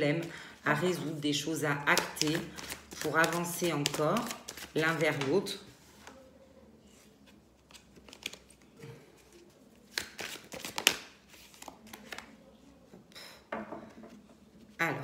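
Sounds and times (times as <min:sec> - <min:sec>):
cards rustling and tapping: 0:01.9 - 0:05.4, 0:07.2 - 0:08.6, 0:09.2 - 0:12.4
card snaps and slaps: 0:09.9 - 0:11.1.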